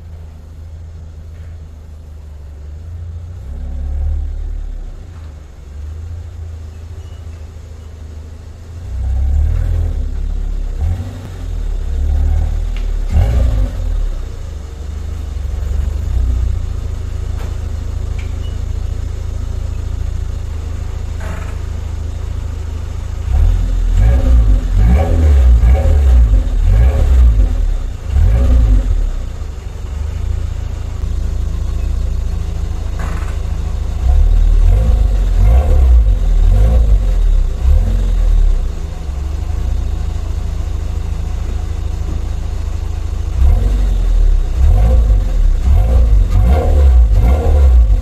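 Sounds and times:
car exhaust rumbling and revving: 0:00.0 - 0:48.0.

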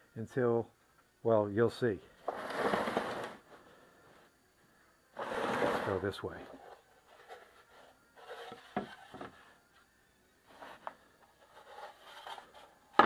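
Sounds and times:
wood rubbing on workbench: 0:02.2 - 0:03.4, 0:05.2 - 0:09.5.

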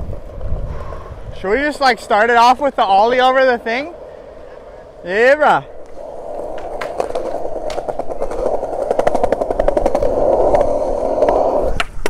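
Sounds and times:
skateboard wheels rolling on concrete: 0:00.0 - 0:12.0
wheels clicking over seams: 0:01.6 - 0:12.0.

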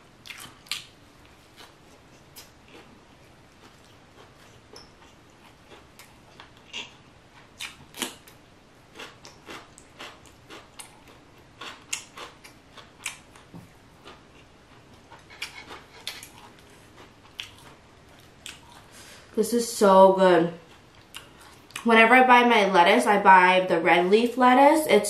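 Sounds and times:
chewing crunchy vegetables: 0:00.2 - 0:18.9, 0:20.6 - 0:21.9.

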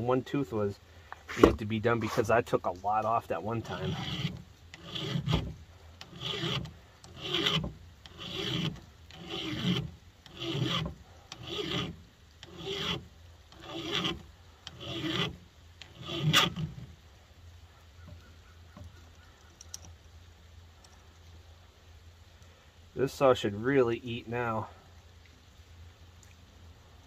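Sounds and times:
file rasping on chainsaw chain: 0:03.2 - 0:16.9.

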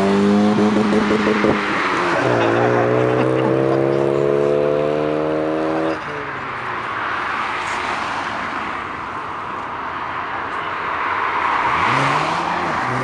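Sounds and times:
car engine revving high: 0:00.0 - 0:06.0, 0:11.7 - 0:13.0.

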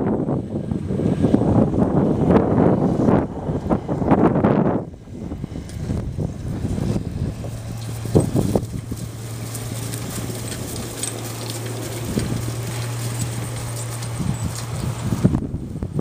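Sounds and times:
hooves knocking on grass: 0:05.6 - 0:16.0
cart rattling: 0:05.7 - 0:16.0.

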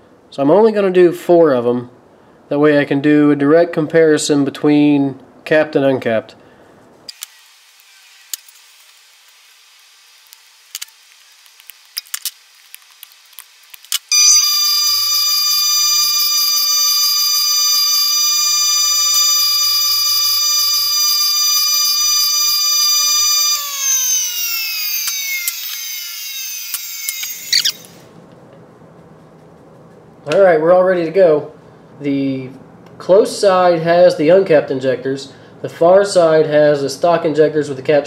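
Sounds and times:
bench grinder whining: 0:14.1 - 0:28.0.

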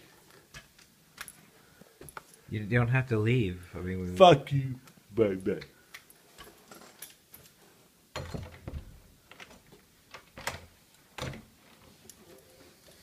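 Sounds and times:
wooden door opening: 0:08.2 - 0:11.6.

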